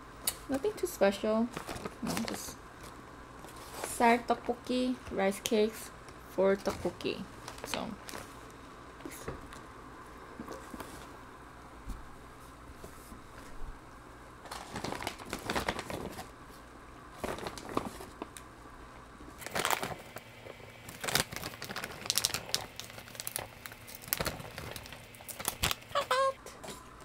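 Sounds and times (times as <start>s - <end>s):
plastic packaging crinkling: 1.5s - 4.1s, 6.6s - 8.4s, 14.4s - 16.3s, 17.1s - 18.5s, 19.4s - 26.1s.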